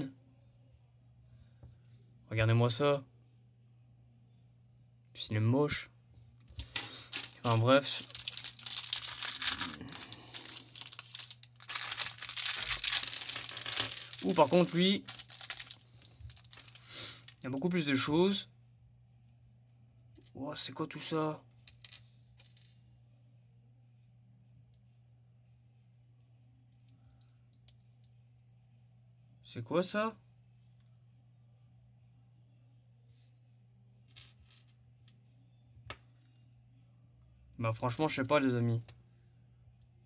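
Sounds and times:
low steady hum: 0:00.0 - 0:40.0
plastic bag crinkling: 0:06.6 - 0:17.4.

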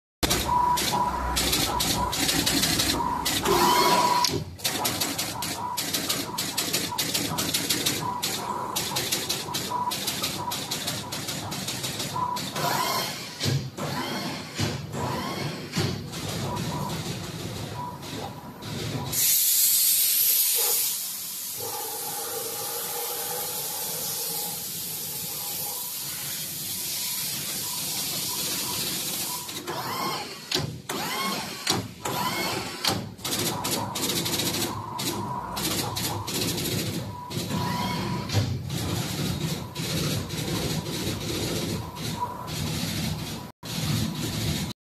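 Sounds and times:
air hiss burst: 0:19.2 - 0:28.2.

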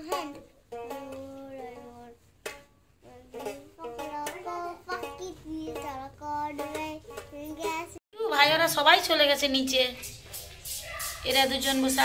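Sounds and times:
boy singing: 0:00.0 - 0:02.3, 0:03.0 - 0:08.0.

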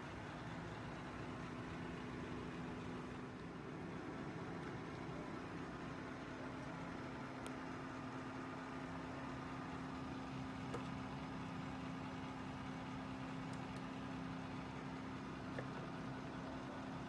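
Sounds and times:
desktop computer humming: 0:00.0 - 0:17.0.

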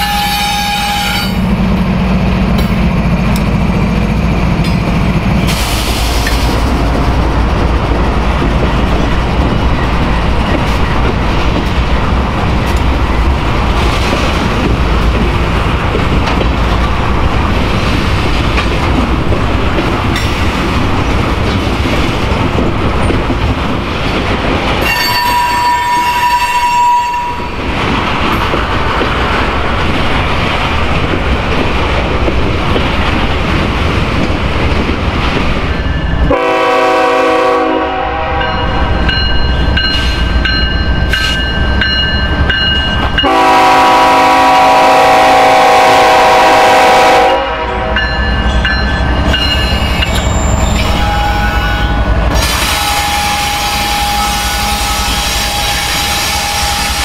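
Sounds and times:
locomotive air horn: 0:00.0 - 0:01.4, 0:24.9 - 0:27.4, 0:36.3 - 0:38.6, 0:43.2 - 0:48.0, 0:50.8 - 0:57.0
train wheels clattering on rails: 0:00.0 - 0:57.0.

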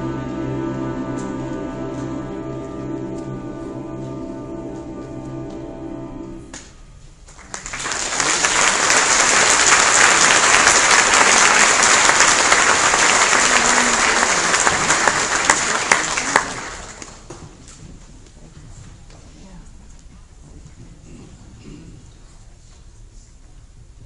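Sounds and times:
held music chord: 0:00.0 - 0:06.7
audience applause: 0:07.3 - 0:17.3.

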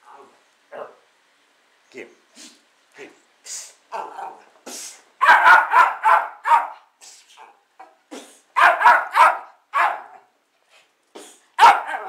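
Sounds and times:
small dogs barking: 0:00.0 - 0:01.0, 0:03.9 - 0:04.5, 0:05.2 - 0:10.3, 0:11.6 - 0:12.0.

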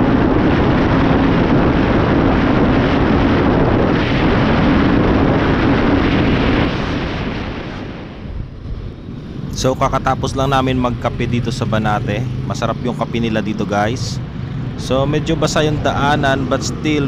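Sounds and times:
motorcycle engine at high speed: 0:00.0 - 0:06.9, 0:09.1 - 0:17.0
wind rush on microphone: 0:00.0 - 0:17.0
road ambience: 0:08.6 - 0:17.0.

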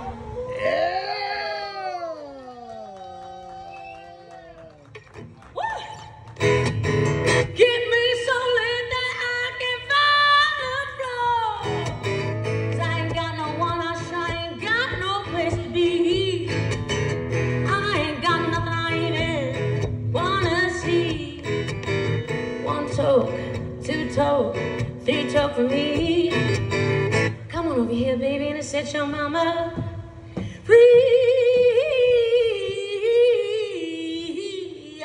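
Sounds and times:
acoustic guitar: 0:04.9 - 0:33.3
woman singing blues: 0:07.4 - 0:17.0, 0:17.6 - 0:35.0.

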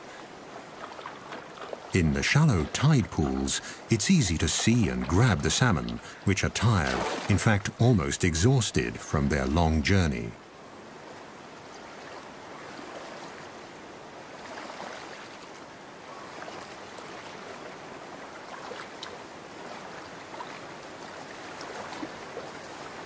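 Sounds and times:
shallow stream flowing: 0:00.0 - 0:23.0
faint brief splashes: 0:06.8 - 0:07.5.

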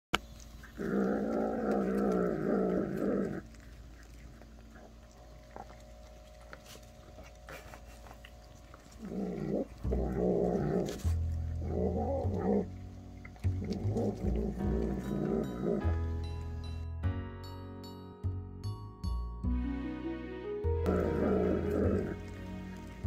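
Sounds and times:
cat growling: 0:00.7 - 0:05.9, 0:08.8 - 0:12.8, 0:13.5 - 0:15.9, 0:20.9 - 0:22.3.

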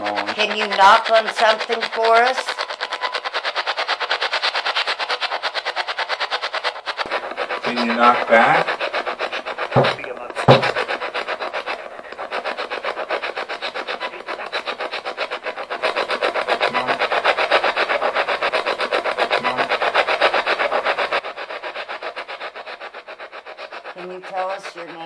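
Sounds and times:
choppy radio static pulses: 0:07.0 - 0:21.2.

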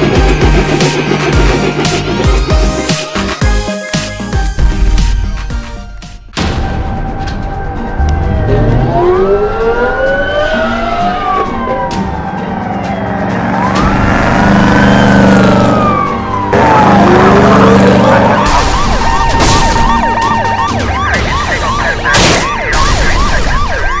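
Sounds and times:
low engine drone: 0:00.0 - 0:03.4, 0:07.2 - 0:22.0
police sirens wailing: 0:07.0 - 0:24.0
fast yelp siren: 0:08.4 - 0:24.0.

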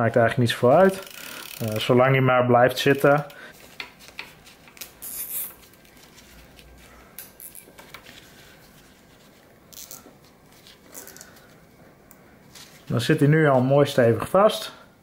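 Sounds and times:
cable ties ratcheting clicks: 0:00.9 - 0:01.8
gloved hands rustling: 0:03.5 - 0:14.0.

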